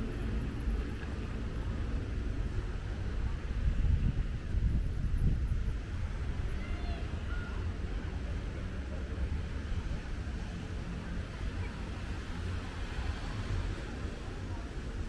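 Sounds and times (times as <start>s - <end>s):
faint distant voices: 0.0s - 15.0s
wind rumble on microphone: 0.0s - 15.0s.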